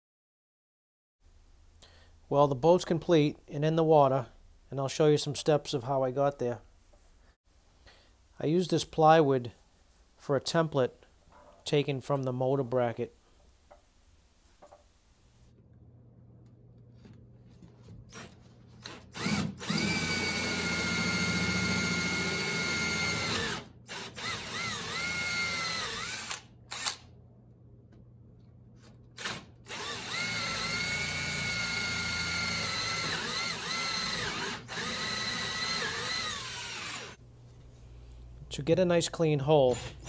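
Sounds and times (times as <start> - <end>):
cordless drill boring: 18.1 - 27.0, 29.2 - 37.2.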